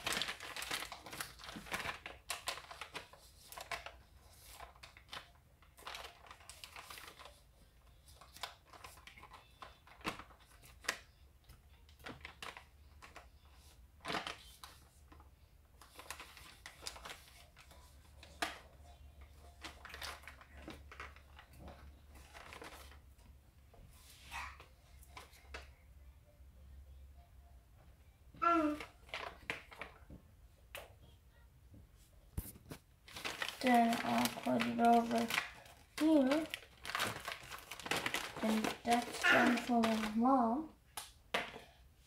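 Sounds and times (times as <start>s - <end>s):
wrapping paper crinkling: 0.0s - 23.2s, 28.5s - 30.0s, 32.4s - 41.0s.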